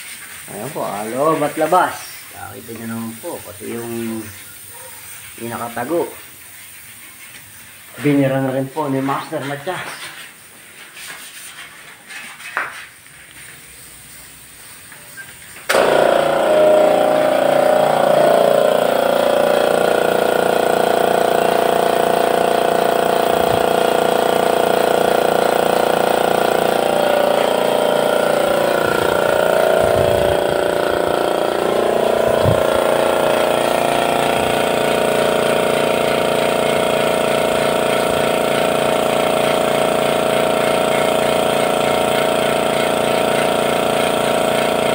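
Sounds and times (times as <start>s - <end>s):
air compressor motor running: 0.0s - 9.3s, 15.6s - 44.9s.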